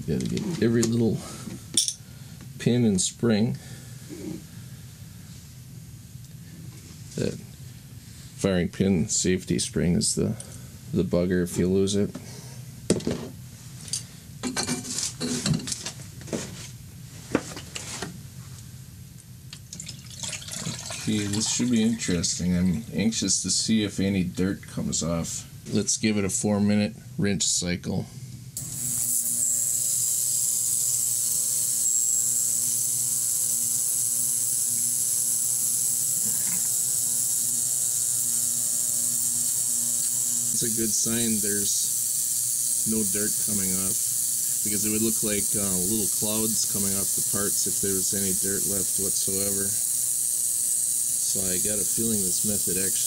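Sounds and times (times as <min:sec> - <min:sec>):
ultrasonic cleaner buzz and hiss: 0:28.6 - 0:53.0.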